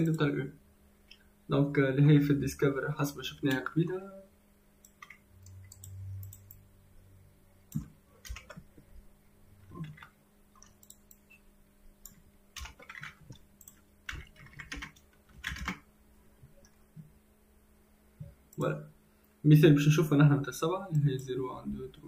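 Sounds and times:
computer keyboard typing: 4.8s - 6.6s, 7.7s - 8.7s, 9.6s - 11.2s, 12.0s - 15.9s.

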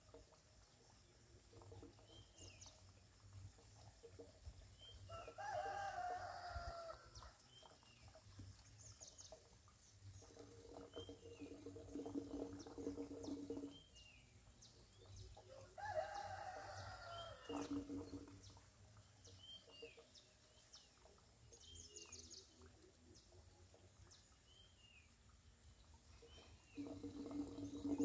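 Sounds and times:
rooster crowing: 5.3s - 7.0s, 15.8s - 17.4s.

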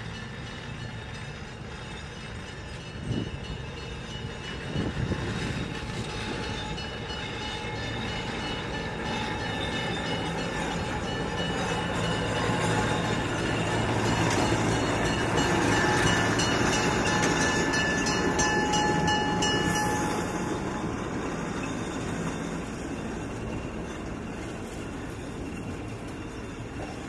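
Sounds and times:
diesel locomotive engine droning: 0.0s - 27.0s
train wheels clicking over rails: 0.0s - 27.0s.

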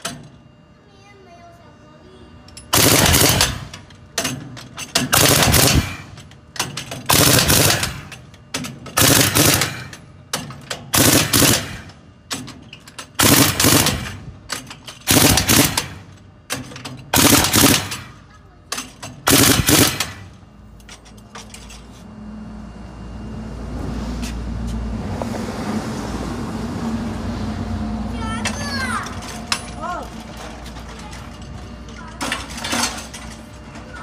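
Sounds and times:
pneumatic impact wrench bursts: 2.7s - 18.2s, 18.8s - 20.4s.

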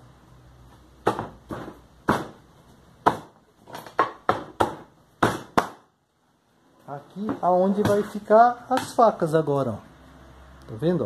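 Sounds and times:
bamboo slats knocking: 3.0s - 5.9s, 7.2s - 9.0s.

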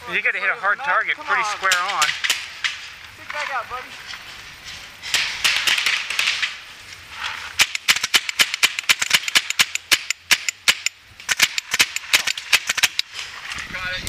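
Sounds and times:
paintball marker rapid shots: 5.2s - 6.5s, 7.6s - 13.1s.

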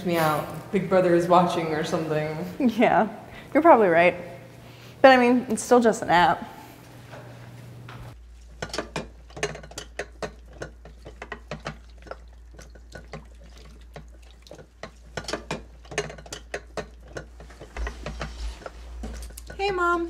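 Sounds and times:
dishes clinking in sink: 8.6s - 13.3s, 14.0s - 18.3s
water splashing: 10.1s - 17.5s.

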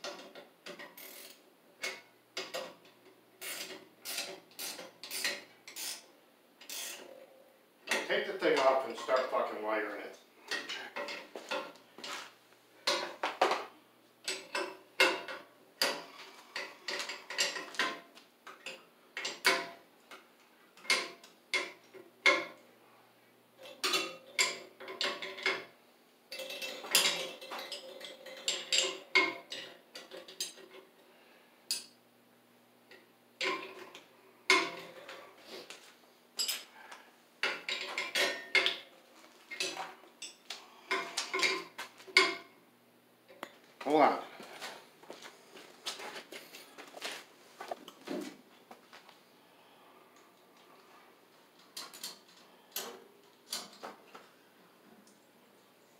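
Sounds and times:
faint steady hum: 0.0s - 55.9s
metal tools clinking: 26.3s - 30.8s, 36.4s - 36.7s, 37.4s - 38.8s.

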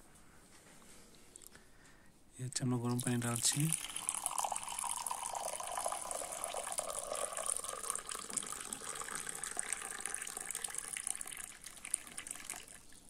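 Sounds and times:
hot water pouring into mug: 2.9s - 13.0s.

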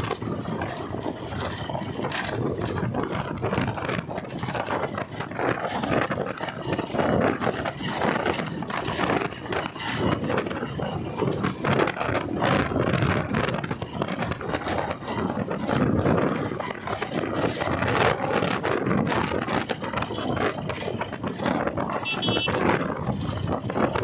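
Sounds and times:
motorcycle road rush: 0.0s - 24.0s
wind buffeting microphone: 0.0s - 24.0s.

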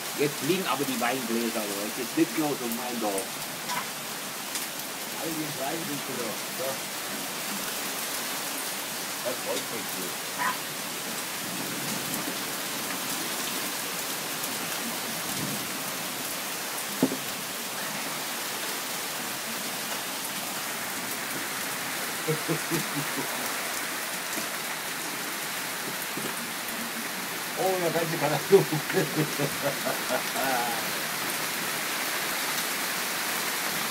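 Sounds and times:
heavy rain and hail: 0.0s - 33.9s.

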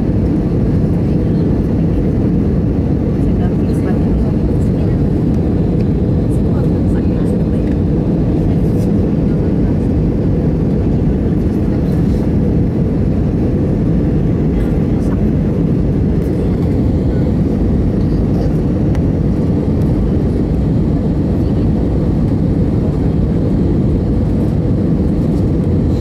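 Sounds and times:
jet engines rumbling: 0.0s - 26.0s
rushing air in airliner cabin: 0.0s - 26.0s.

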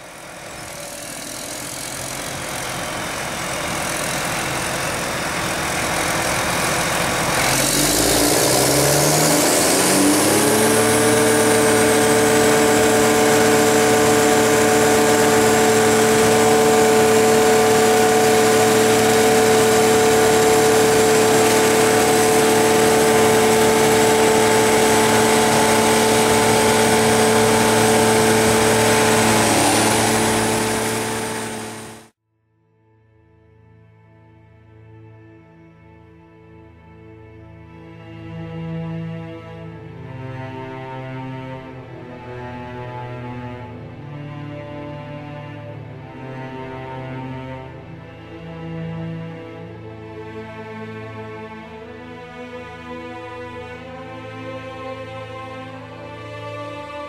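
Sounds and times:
forage harvester whining: 0.0s - 32.1s.

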